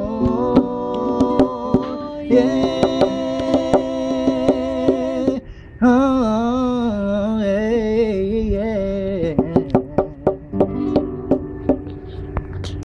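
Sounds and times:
strummed acoustic guitar: 0.0 - 5.5, 9.2 - 12.8
man singing with vibrato: 0.0 - 11.0.

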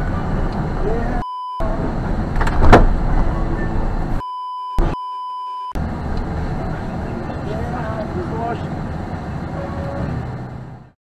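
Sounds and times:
road noise inside vehicle: 0.0 - 11.0
censor bleep: 1.2 - 1.6, 3.6 - 5.8
car crash bang: 2.3 - 4.0.

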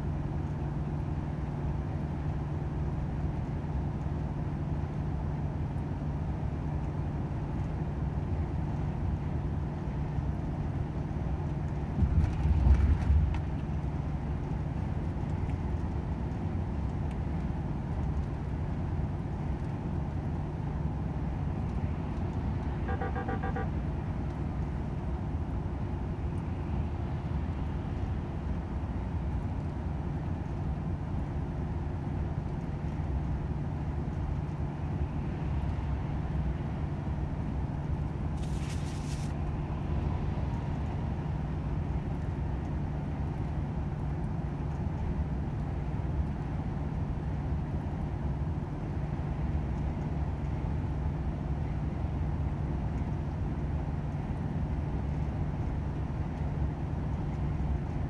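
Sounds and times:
road noise: 0.0 - 58.0
low rumble: 11.2 - 18.3
truck diesel engine droning: 22.6 - 24.0
pitched beeps: 22.9 - 23.7.

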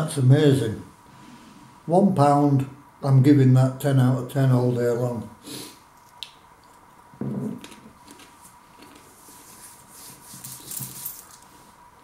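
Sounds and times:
hands brushing together: 8.4 - 11.6.

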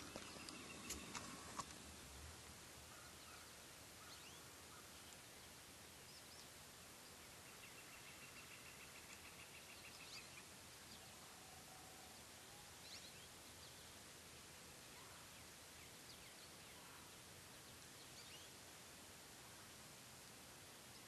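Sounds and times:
faint bird chirps: 0.0 - 1.6, 2.9 - 14.0, 14.9 - 18.6
faint outdoor hiss: 0.0 - 21.0.

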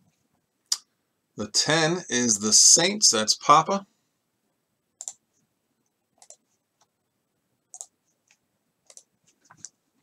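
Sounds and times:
computer mouse clicks: 5.0 - 5.2, 6.2 - 6.9, 7.7 - 9.8.

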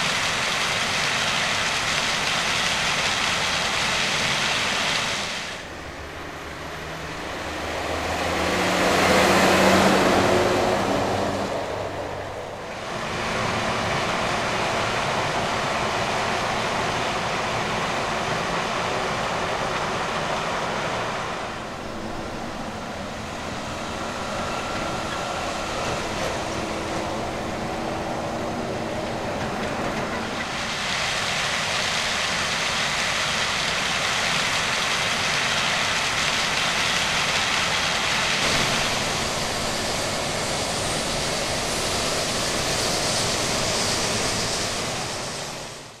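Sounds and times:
rushing hiss: 0.0 - 5.7, 29.8 - 46.0
machinery mechanical drone: 5.6 - 30.8, 37.5 - 46.0.

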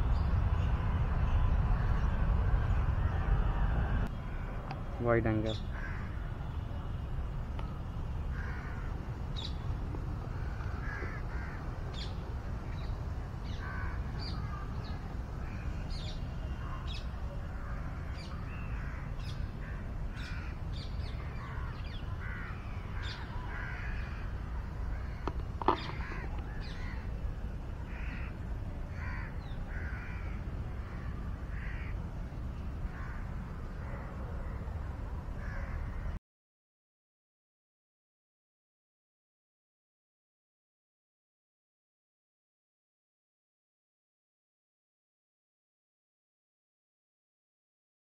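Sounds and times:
steady low rumble: 0.0 - 5.0
crows cawing: 5.7 - 6.2, 8.3 - 9.0, 10.4 - 11.6, 13.6 - 14.6, 18.6 - 20.6, 21.3 - 27.1, 27.9 - 32.0, 32.9 - 34.6, 35.4 - 36.1.

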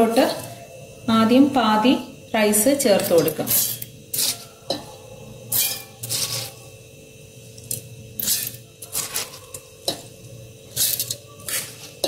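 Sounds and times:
spoon scraping a steel jar: 3.0 - 4.9, 5.5 - 6.6, 7.7 - 10.1, 10.7 - 12.0.

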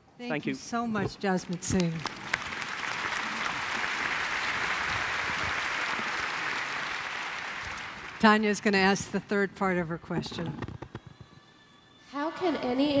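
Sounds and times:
audience applauding: 1.5 - 9.2.

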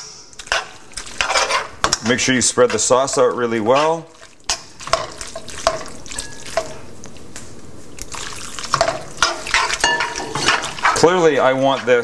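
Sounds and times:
water pouring into skillet: 8.0 - 11.5.

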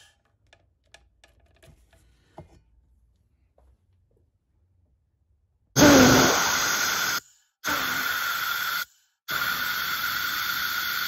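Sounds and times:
air hissing blasts: 5.8 - 11.0.

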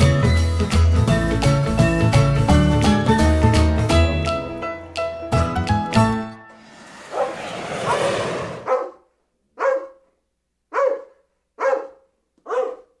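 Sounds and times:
dog barking: 7.1 - 13.0.

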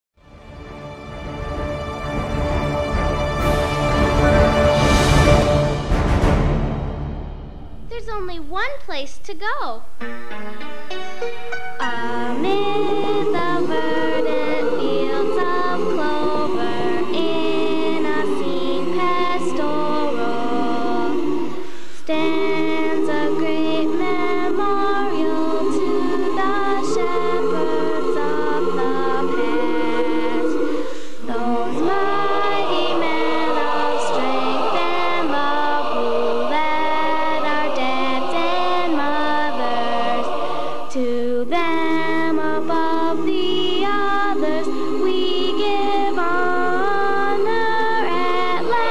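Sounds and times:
girls singing into microphones: 11.8 - 48.9.

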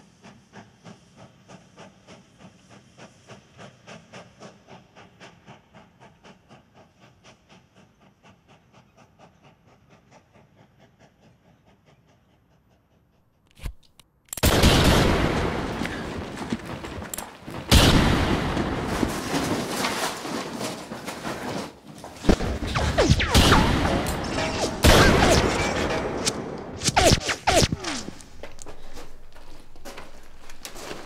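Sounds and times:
gunshots: 14.4 - 19.5, 22.2 - 28.6.

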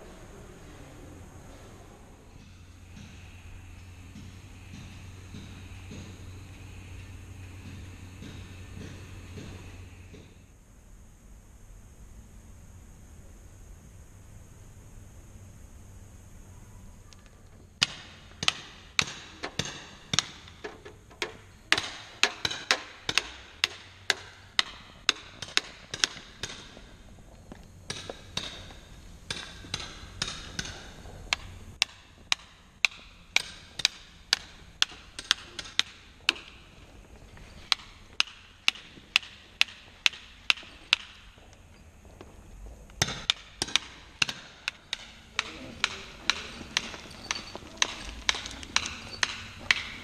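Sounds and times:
hammer striking chisel into rock: 17.8 - 26.7.

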